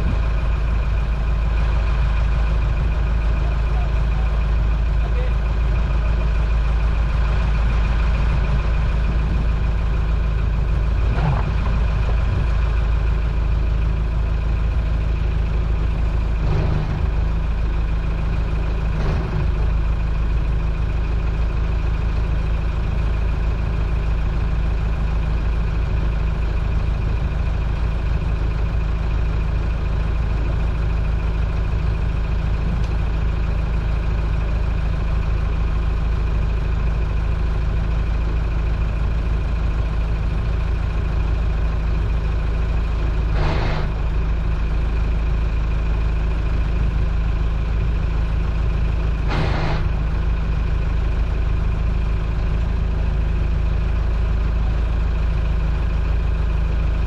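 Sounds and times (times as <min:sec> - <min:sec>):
boat engine droning: 0:00.0 - 0:21.9, 0:39.6 - 0:56.2.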